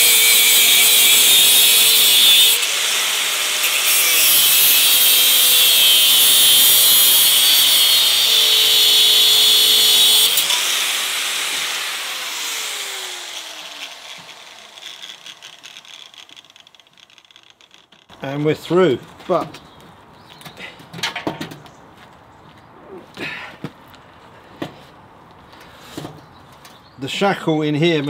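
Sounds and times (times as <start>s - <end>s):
angle grinder cutting metal: 0.0s - 18.1s.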